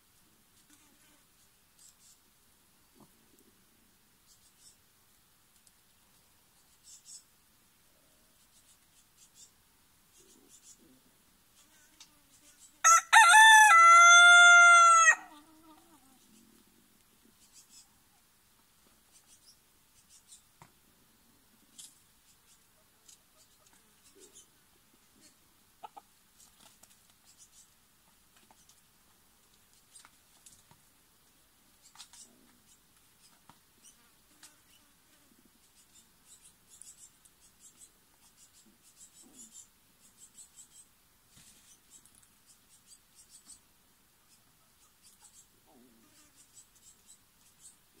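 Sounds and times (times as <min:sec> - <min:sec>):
light ticks: 0:05.5 - 0:05.8
chickens clucking: 0:25.2 - 0:26.7.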